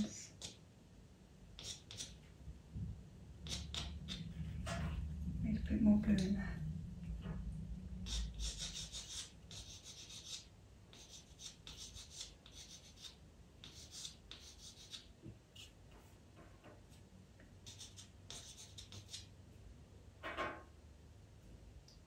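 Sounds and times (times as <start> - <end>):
pencil scratching on paper: 1.6 - 2.2, 3.4 - 4.8, 8.0 - 16.1, 17.6 - 19.3.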